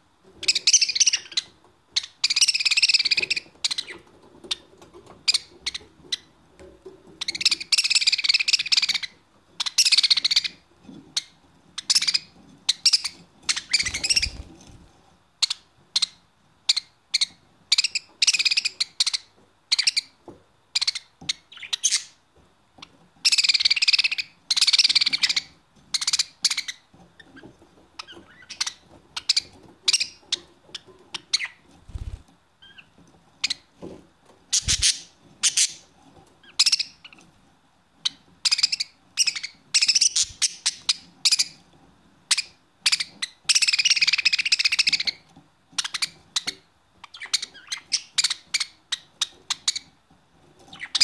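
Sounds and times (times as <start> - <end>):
budgerigars chirping and chattering: 0.4 - 6.3, 7.1 - 20.2, 20.8 - 22.2, 23.2 - 33.7, 34.5 - 37.2, 38.0 - 41.7, 42.3 - 50.0, 50.6 - 51.0.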